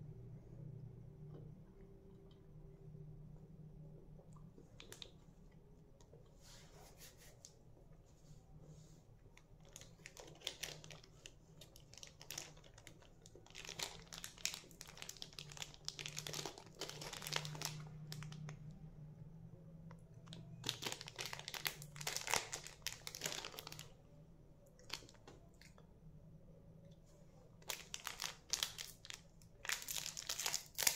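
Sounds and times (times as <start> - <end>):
low steady hum: 0.0 - 30.9
plastic packets crinkling: 9.6 - 18.6, 20.3 - 24.0, 24.8 - 25.2, 27.6 - 30.9.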